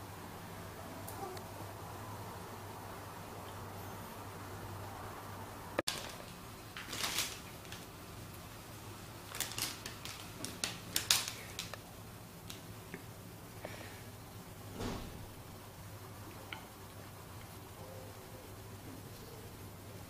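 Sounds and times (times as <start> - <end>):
fabric tunnel rustling: 5.9 - 7.9.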